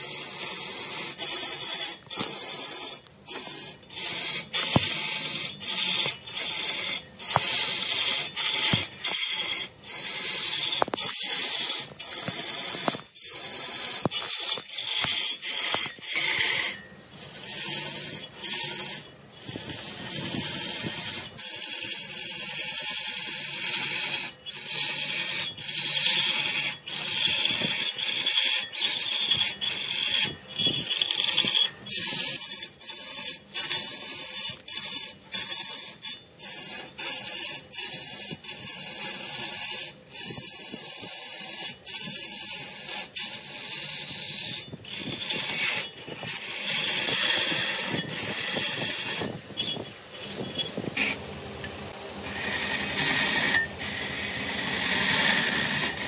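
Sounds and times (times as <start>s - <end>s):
lathe tool scraping wood: 0.0s - 56.0s.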